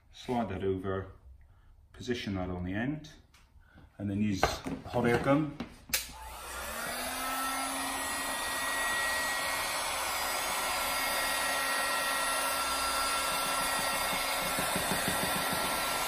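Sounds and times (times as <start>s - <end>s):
hot air gun fan running: 6.1s - 16.0s.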